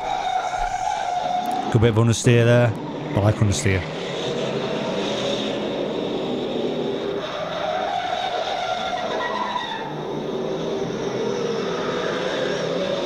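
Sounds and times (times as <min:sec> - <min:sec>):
car engines revving: 0:00.0 - 0:13.0
tyres squealing: 0:07.2 - 0:10.1.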